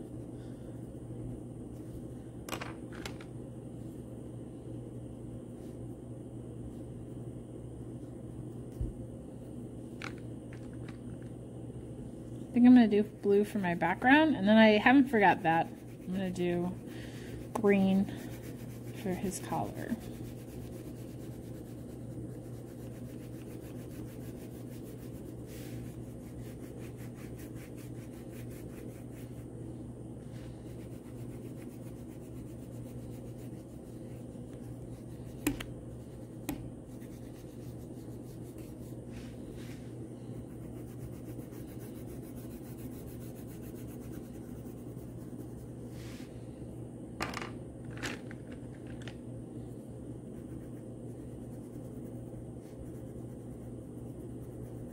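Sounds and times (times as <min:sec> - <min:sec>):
low hum: 0:00.0 - 0:54.9
crayon scratching on paper: 0:15.2 - 0:16.8, 0:17.6 - 0:29.4, 0:30.6 - 0:39.0, 0:40.3 - 0:45.7.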